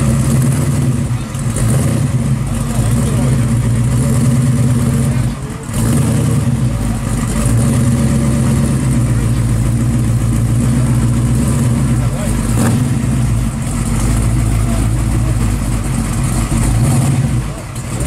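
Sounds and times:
car engine idling loudly: 0.0s - 18.0s.

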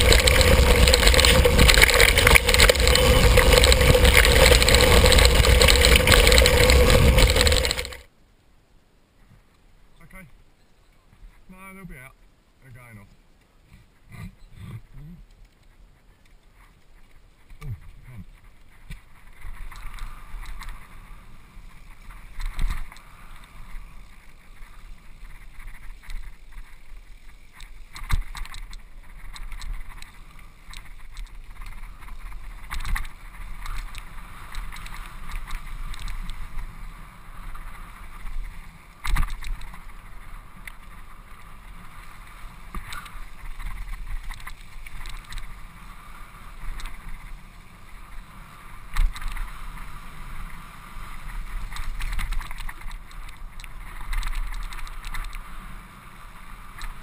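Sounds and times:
bike tyre rumble: 0.0s - 8.1s, 13.7s - 57.0s
wind rush: 0.0s - 8.1s.

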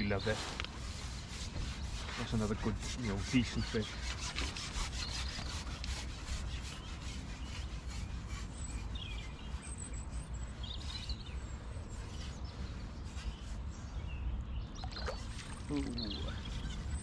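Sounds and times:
close rubbing and rustling: 0.0s - 14.2s, 15.1s - 17.0s
bird chirps: 6.7s - 17.0s.

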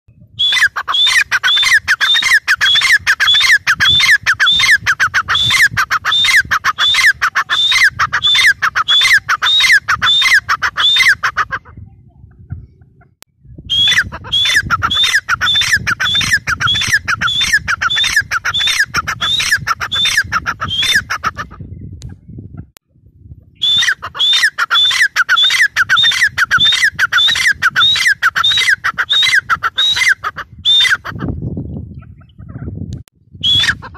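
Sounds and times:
francolin calling: 0.4s - 11.3s, 13.7s - 21.2s, 23.6s - 31.0s.

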